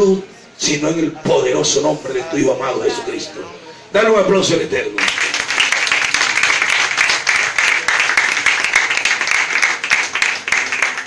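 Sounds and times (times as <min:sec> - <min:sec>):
crowd applauding: 0:05.0 - 0:11.0.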